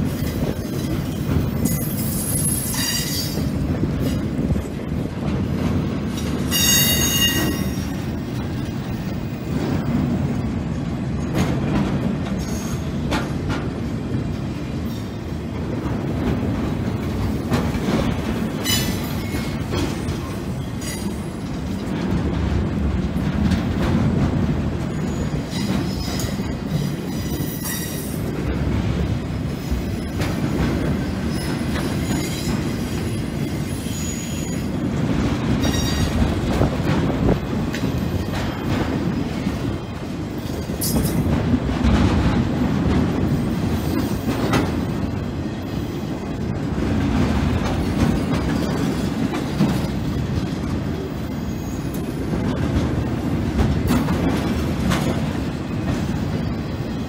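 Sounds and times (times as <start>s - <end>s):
train wheels rumbling on rails: 0.0s - 57.0s
high-pitched wheel squeals: 6.5s - 7.9s.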